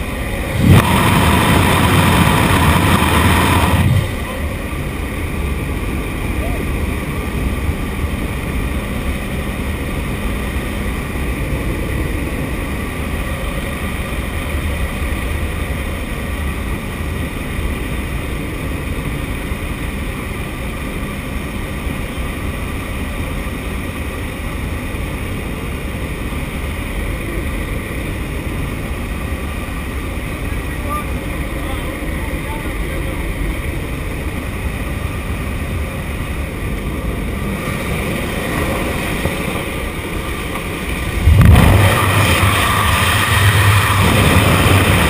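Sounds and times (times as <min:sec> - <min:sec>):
propeller engine drone: 0:00.0 - 0:45.0.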